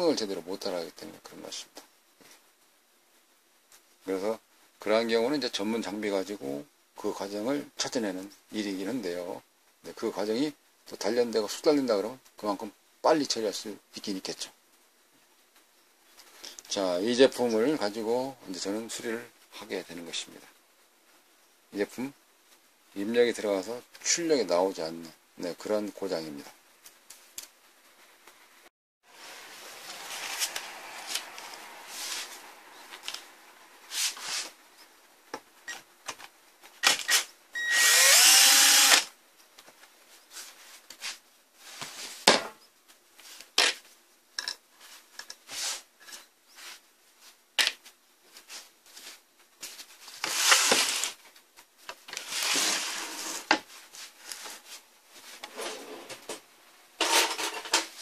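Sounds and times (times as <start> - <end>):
power screwdriver whirring: 36.8 - 39.1.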